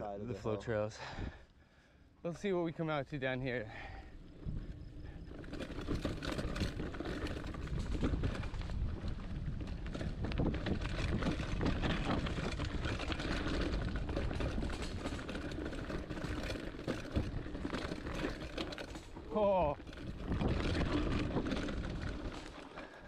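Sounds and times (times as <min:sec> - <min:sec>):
bike rattling and clicking: 0:03.4 - 0:23.0
bike tyres rumbling on dirt: 0:03.6 - 0:23.0.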